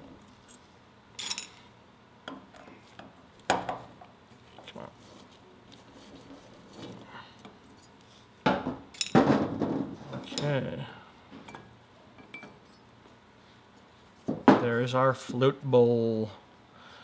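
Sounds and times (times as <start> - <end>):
metal clinking on a workbench: 1.2 - 1.6, 8.9 - 9.3.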